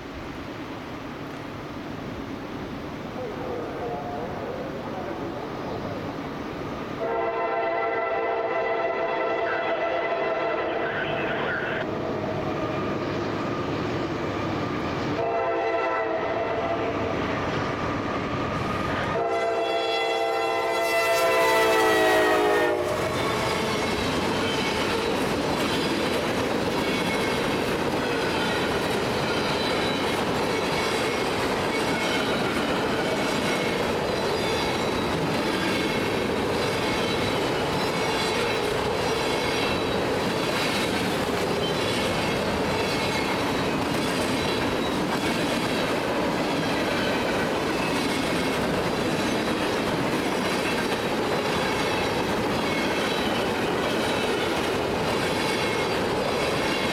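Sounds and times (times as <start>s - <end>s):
train wheels rumbling: 3.8s - 56.9s
clickety-clack at rail joints: 16.9s - 19.2s, 20.6s - 56.9s.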